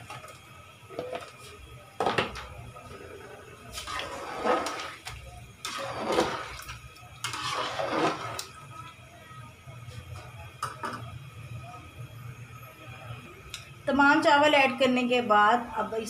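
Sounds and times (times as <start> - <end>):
liquid sloshing in a pot: 2.8 - 8.6
rice poured into liquid: 3.7 - 8.7.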